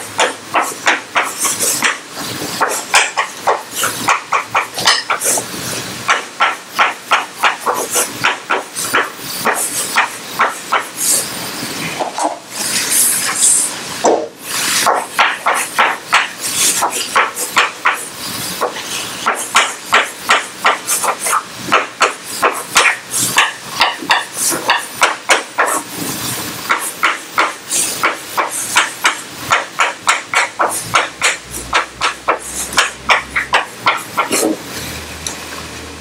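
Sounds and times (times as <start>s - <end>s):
chalk tapping and scratching on blackboard: 0.2s - 2.0s, 2.6s - 5.5s, 6.1s - 11.2s, 14.6s - 25.9s, 26.7s - 34.6s.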